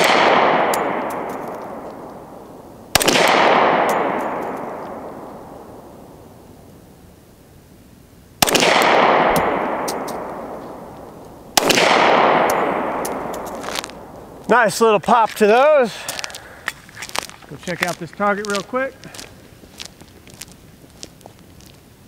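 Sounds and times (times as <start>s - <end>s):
pistol shots with echo: 0.0s - 6.0s, 8.4s - 14.4s.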